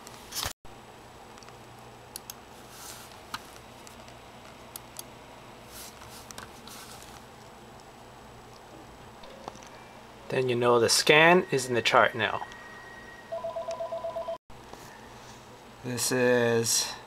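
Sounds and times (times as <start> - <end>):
faint steady hum: 0.0 - 17.0
computer mouse clicks: 1.4 - 2.4, 3.3 - 5.1.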